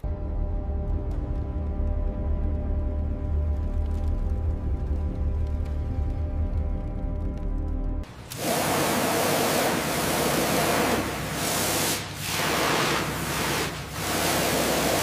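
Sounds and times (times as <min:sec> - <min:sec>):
music: 0:00.0 - 0:08.1
high-pressure water jet hissing: 0:08.3 - 0:15.0.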